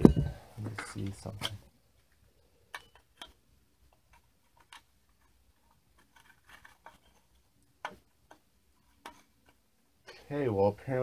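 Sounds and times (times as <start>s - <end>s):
metal poles clicking and tapping: 2.7s - 9.6s.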